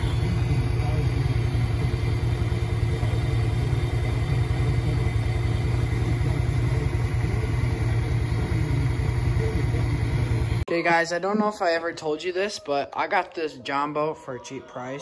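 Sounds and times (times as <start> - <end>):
utility vehicle engine running: 0.0 - 10.7.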